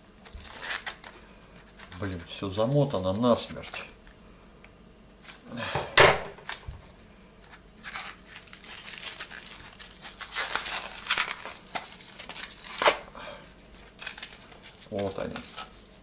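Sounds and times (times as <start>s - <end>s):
plastic wrap crinkling and tearing: 0.2s - 4.0s, 7.4s - 16.0s
scissors cutting plastic film: 0.2s - 4.0s, 7.4s - 13.1s, 13.8s - 16.0s.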